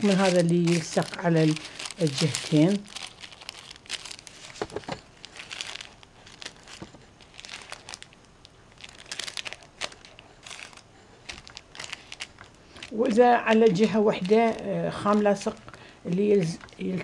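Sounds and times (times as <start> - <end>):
fabric sheet rustling and crinkling: 0.0 - 8.1.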